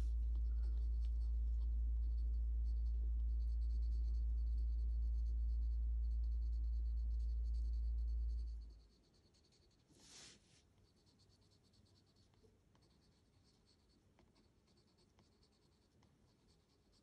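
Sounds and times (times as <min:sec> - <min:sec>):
low hum: 0:00.0 - 0:09.0
pencil scratching on paper: 0:00.0 - 0:17.0.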